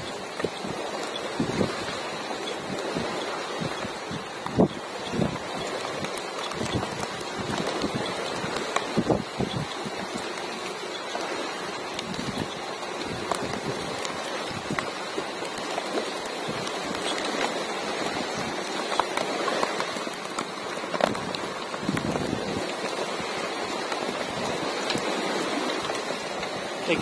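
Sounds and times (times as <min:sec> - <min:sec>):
rain-like water noise: 0:00.0 - 0:27.0.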